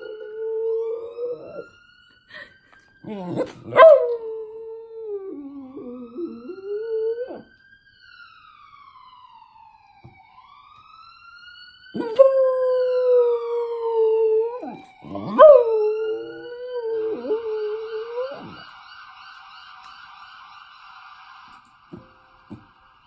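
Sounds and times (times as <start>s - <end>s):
dog howling: 12.9s - 18.6s.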